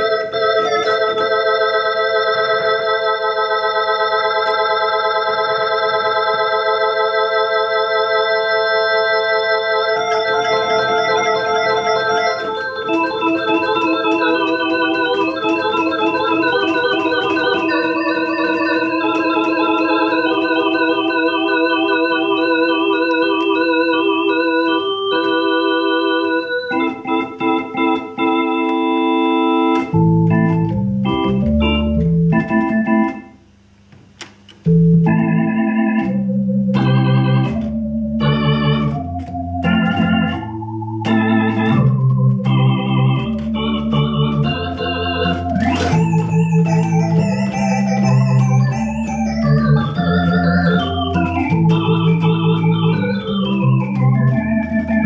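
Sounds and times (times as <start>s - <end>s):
electronic organ chords: 0.0s - 55.0s
low bass notes: 29.7s - 33.2s, 34.6s - 55.0s.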